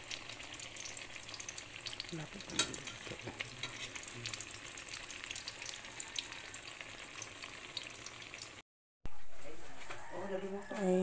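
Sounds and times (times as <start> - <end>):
bananas deep-frying in oil: 0.0 - 8.6.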